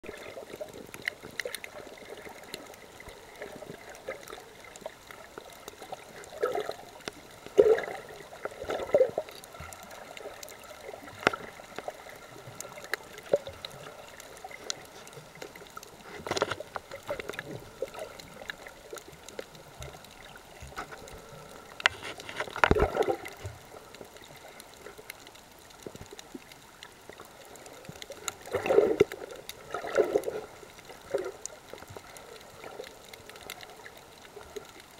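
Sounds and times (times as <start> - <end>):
faint underwater hiss: 0.0 - 34.9
water gurgling and sloshing: 0.0 - 34.9.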